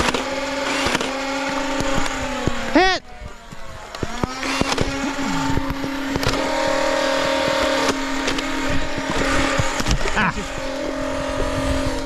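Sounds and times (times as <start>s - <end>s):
sharp clicks: 0.0s - 2.7s, 3.5s - 6.5s
toy blaster flywheels whining: 0.0s - 12.0s.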